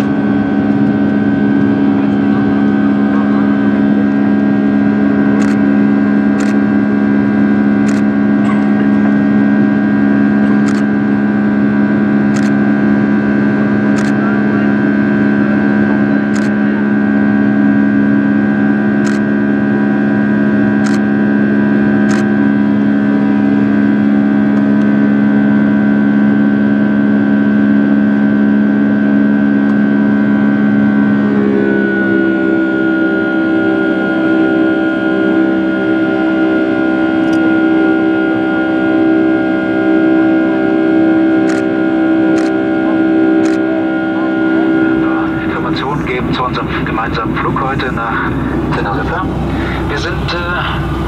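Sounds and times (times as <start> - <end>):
airplane engines humming and whining: 0.0 - 51.0
cabin air rushing: 44.5 - 51.0.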